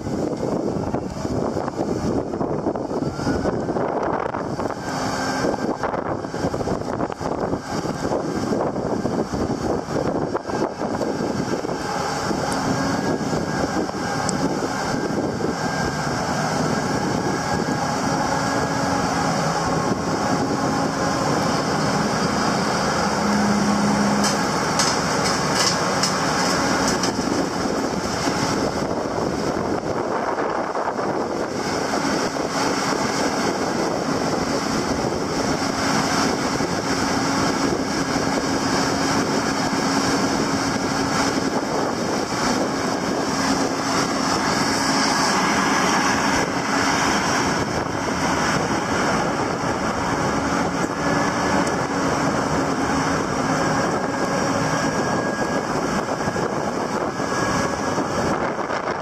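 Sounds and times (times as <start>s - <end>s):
diesel engine running: 0.0s - 59.0s
wind noise on microphone: 0.0s - 59.0s.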